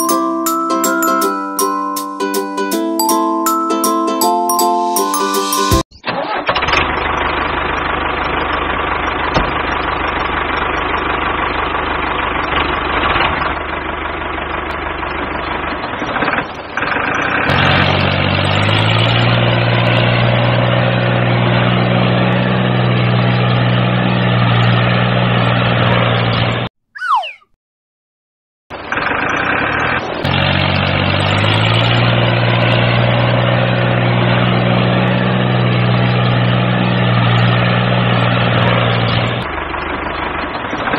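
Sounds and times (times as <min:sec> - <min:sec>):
tractor engine running: 0:06.1 - 0:26.6, 0:28.8 - 0:40.9.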